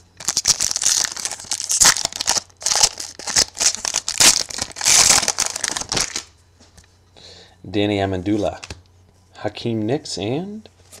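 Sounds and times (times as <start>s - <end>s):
plastic wrapper crinkling: 0.2s - 6.3s.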